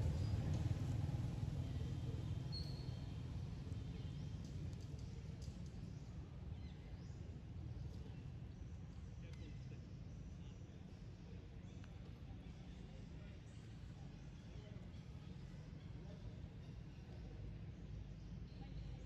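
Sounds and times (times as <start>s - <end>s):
low outdoor rumble: 0.0s - 9.7s.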